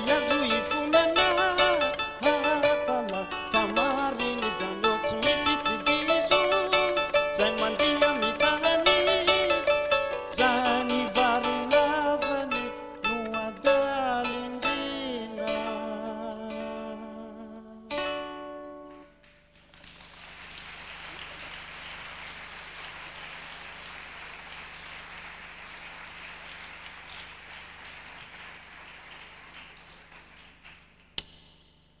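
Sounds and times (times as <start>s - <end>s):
plucked string chord ringing: 0.0s - 17.2s
audience applause: 19.4s - 31.2s.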